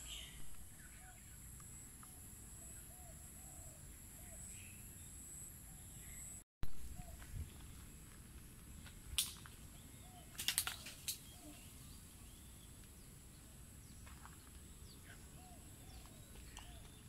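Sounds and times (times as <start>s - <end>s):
faint bird chirps: 0.0s - 7.7s, 9.8s - 12.8s
footsteps on path: 13.9s - 14.7s, 15.8s - 17.0s.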